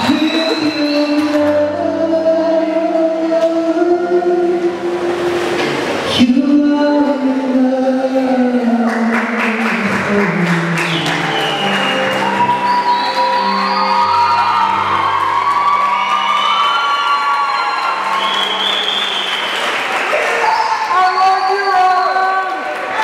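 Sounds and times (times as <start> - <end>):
man singing: 0.0 - 5.3, 6.1 - 11.2.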